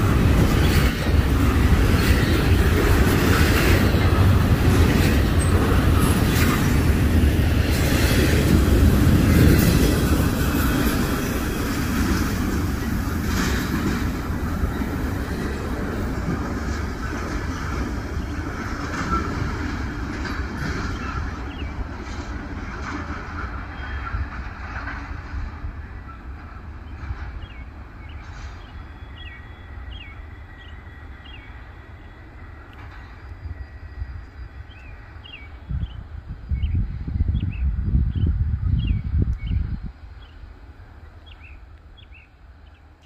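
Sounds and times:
wheels clicking over track: 0.0s - 25.5s
freight train rolling past: 0.0s - 43.0s.

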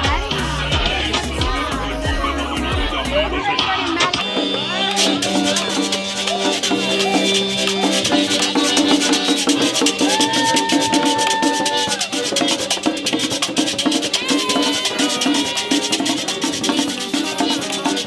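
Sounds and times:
drum: 0.0s - 18.0s
metal scraper beat: 4.0s - 18.0s
button accordion melody: 4.1s - 18.0s.

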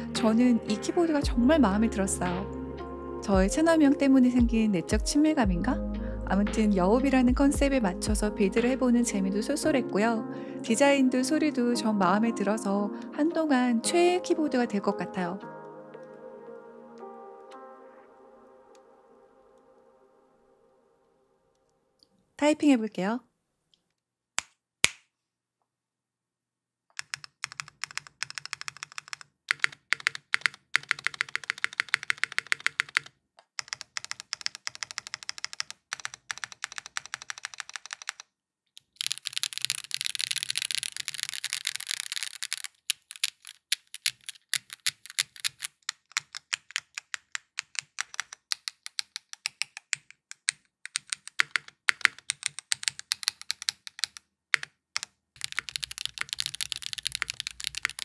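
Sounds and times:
mechanical keyboard typing: 26.9s - 58.0s.

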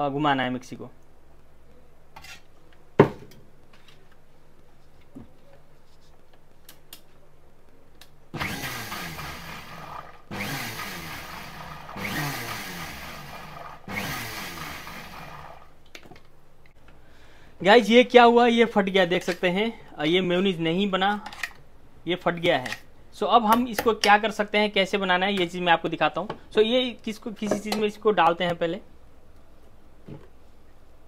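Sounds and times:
electric mixer grinder blending: 8.4s - 15.7s.

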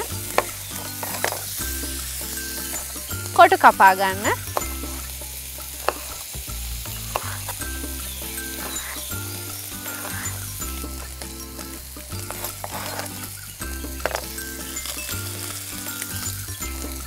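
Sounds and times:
background music with bass: 0.0s - 17.0s
food sizzling in a pan: 0.0s - 17.0s
knife cutting on a board: 7.0s - 7.6s, 9.8s - 10.4s, 12.2s - 13.2s.

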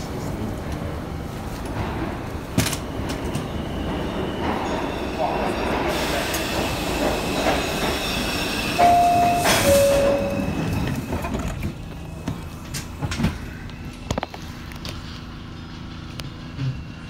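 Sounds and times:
subway train rumble: 0.0s - 17.0s
train clanks: 0.0s - 17.0s
train whine stepping down: 3.4s - 12.7s.

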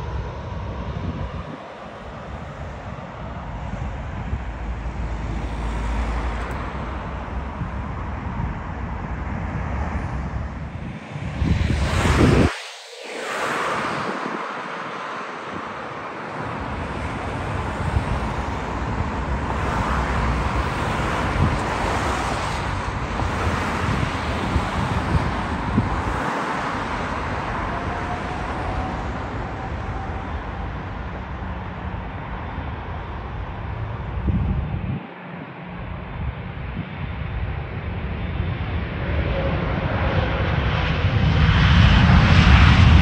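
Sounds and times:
jet airliner roar: 0.0s - 43.0s
wind on microphone: 0.0s - 43.0s
faint rising whine: 1.9s - 25.0s, 25.7s - 36.8s.

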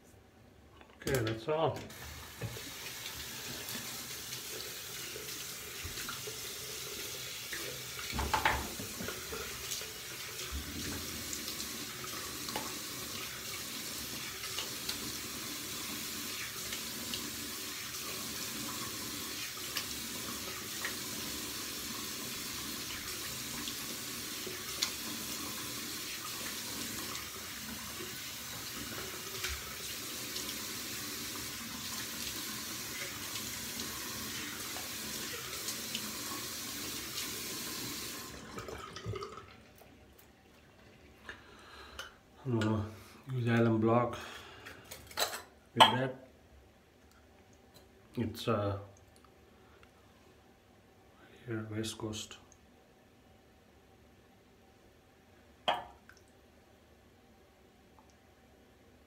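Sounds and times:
water running from sink tap: 1.9s - 41.2s.

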